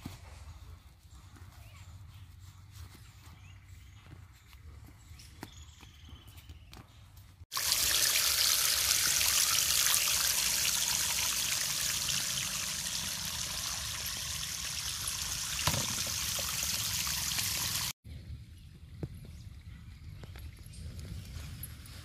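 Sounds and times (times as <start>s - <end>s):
rushing trickling water: 7.5s - 18.0s.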